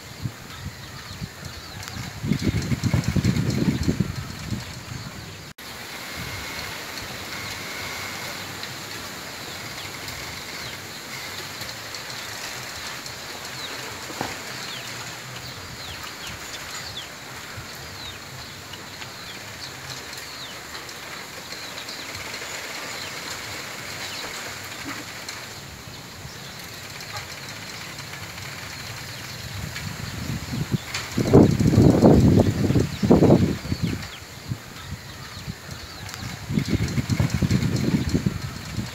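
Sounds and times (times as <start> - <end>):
wind rustling bamboo leaves: 0.0 - 38.9.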